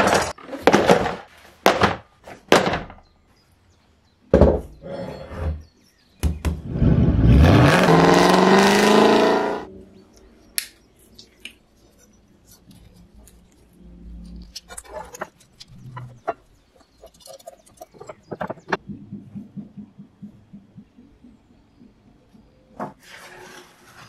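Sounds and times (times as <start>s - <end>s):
objects knocking on wooden bench: 4.3s - 4.8s.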